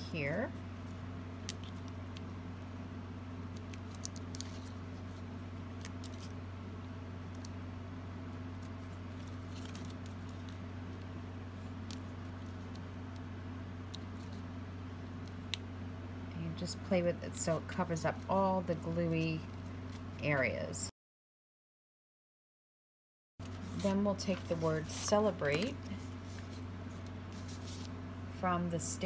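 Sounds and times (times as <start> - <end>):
steady low hum: 0.0 - 20.9, 23.4 - 29.0
paper handling clicks and rustles: 3.5 - 6.4, 8.6 - 13.2, 23.4 - 27.9.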